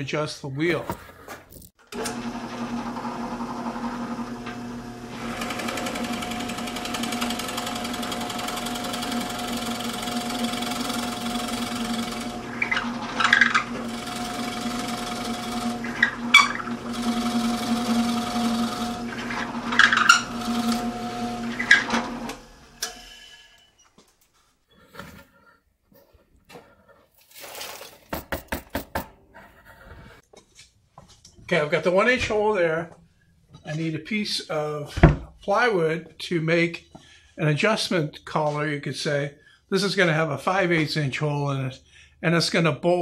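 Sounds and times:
drill bit cutting wood: 1.9s - 22.9s
drill press motor hum: 1.9s - 23.1s.

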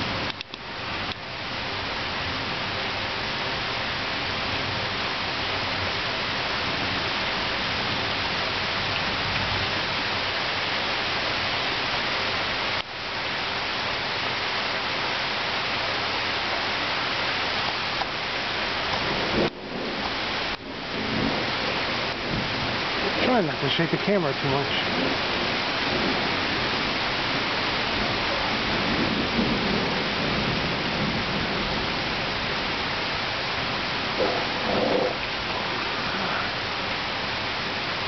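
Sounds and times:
heavy rain: 0.0s - 38.0s
thunder rumbles: 18.1s - 38.0s.

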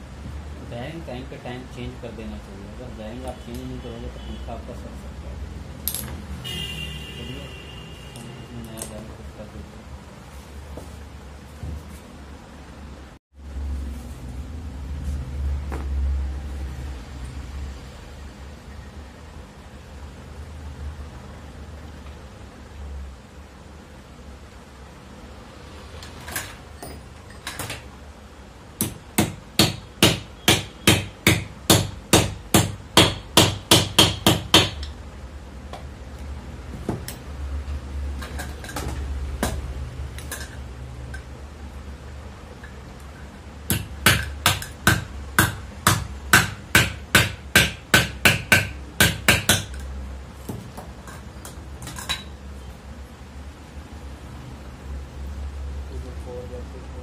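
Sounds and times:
hammer striking metal: 28.8s - 34.9s, 43.7s - 49.8s.

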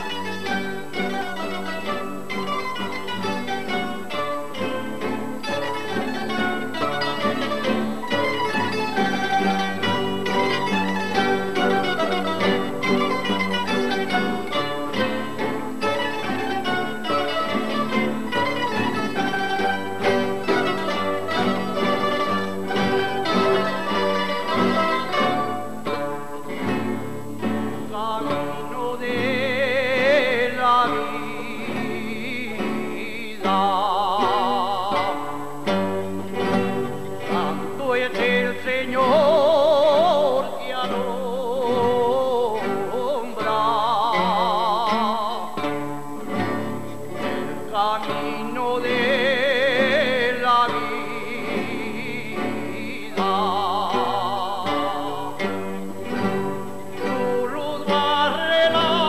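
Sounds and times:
guitars and lutes playing: 0.0s - 59.0s
man singing with vibrato: 0.0s - 59.0s.

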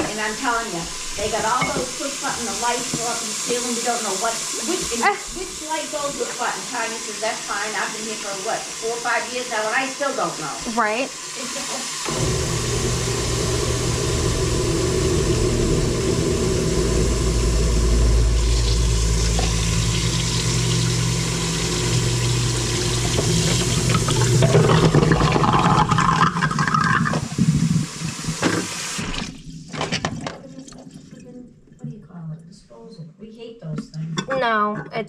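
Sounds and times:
faucet running: 0.0s - 29.8s
garbage disposal motor hum: 0.0s - 31.8s
sink draining: 0.0s - 31.8s
dishes clattering in sink: 1.3s - 2.0s, 28.4s - 31.0s.

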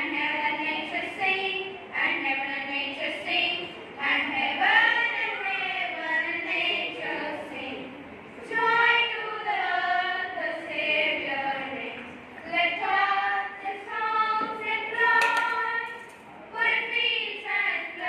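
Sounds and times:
children singing slow song: 0.0s - 18.0s.

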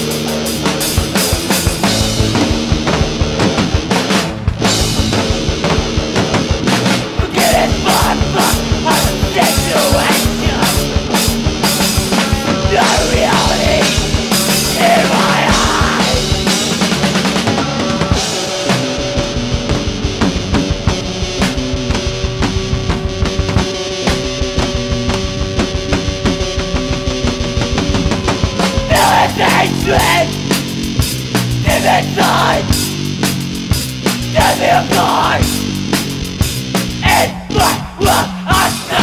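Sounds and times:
fast drum beat: 0.0s - 18.8s, 27.5s - 39.0s
bass: 0.0s - 39.0s
distorted guitar: 0.0s - 39.0s.

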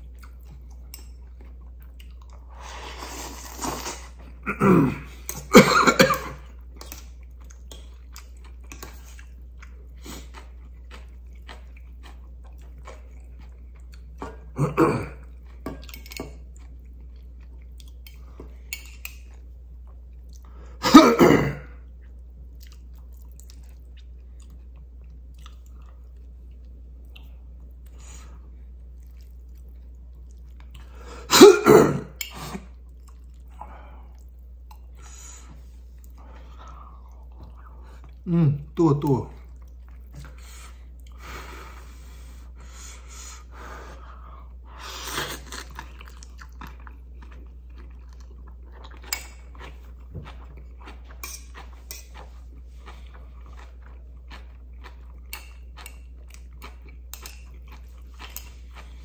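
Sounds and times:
soft chewing: 0.0s - 4.4s, 6.3s - 20.8s, 21.8s - 31.1s, 32.1s - 38.3s, 39.3s - 59.0s
person slurping noodles: 2.5s - 5.1s.

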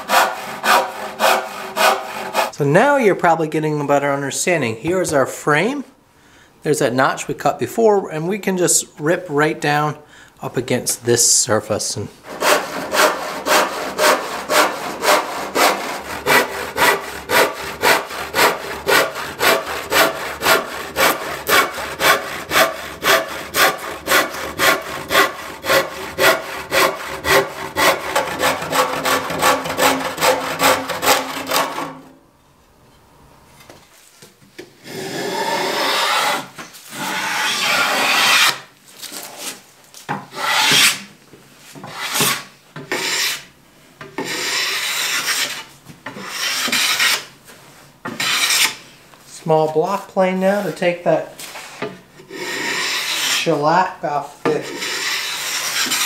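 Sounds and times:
hand saw cutting wood: 0.0s - 2.6s, 12.2s - 32.1s, 34.8s - 38.7s, 40.3s - 41.0s, 41.8s - 43.5s, 44.2s - 47.3s, 48.1s - 48.8s, 51.7s - 53.6s, 54.4s - 56.0s
scraping strokes on wood: 0.0s - 2.6s, 12.2s - 32.1s, 35.2s - 41.1s, 41.7s - 47.3s, 48.1s - 48.8s, 51.4s - 53.6s, 54.5s - 56.0s.

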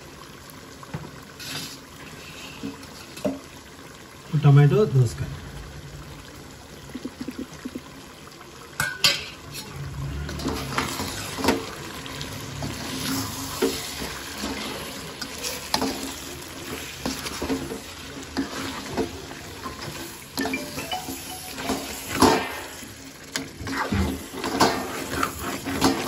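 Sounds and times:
food frying sizzle: 0.0s - 26.0s
metal spatula scraping pan: 23.6s - 26.0s.

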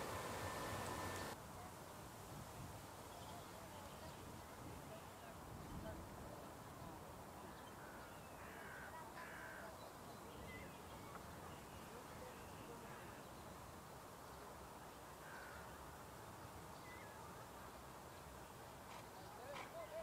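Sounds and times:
faint bird calls: 7.4s - 13.6s, 15.2s - 15.8s.

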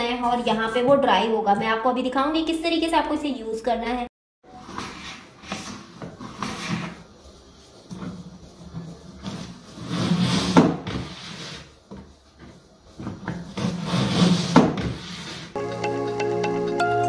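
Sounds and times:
mop pad scraping bucket slot: 9.2s - 15.5s.

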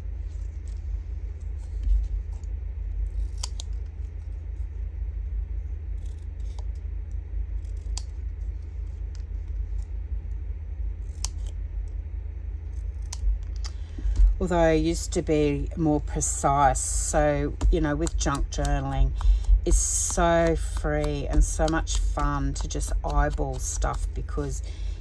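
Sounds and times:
steady low hum: 0.0s - 25.0s
scissors snipping paper: 1.4s - 4.2s, 6.0s - 6.8s, 7.5s - 9.9s, 11.0s - 11.6s, 12.7s - 14.2s, 17.0s - 24.8s.

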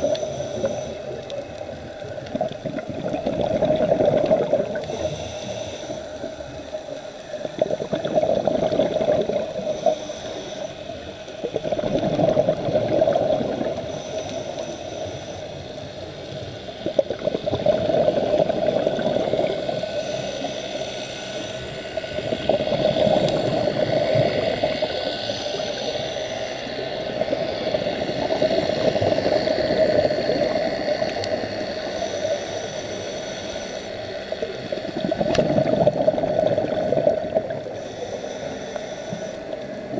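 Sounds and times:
regulator inhalation hiss: 0.0s - 1.4s, 4.6s - 7.3s, 9.5s - 11.4s, 13.7s - 16.5s, 19.2s - 22.3s, 23.1s - 34.8s, 37.6s - 39.8s
exhaled bubbles underwater: 0.0s - 5.2s, 7.2s - 10.0s, 11.4s - 14.4s, 16.2s - 20.4s, 21.6s - 25.9s, 26.6s - 32.0s, 34.2s - 37.8s.

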